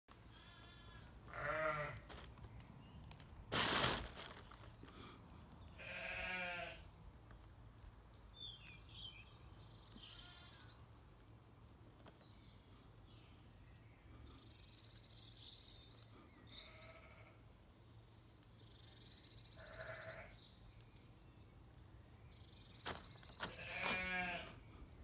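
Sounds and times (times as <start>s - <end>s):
sheep bleating: 0.3s - 2.0s, 5.8s - 6.8s, 10.0s - 10.8s, 16.6s - 17.4s, 19.6s - 20.4s, 23.5s - 24.6s
small birds chirping: 4.2s - 11.0s, 11.8s - 25.0s.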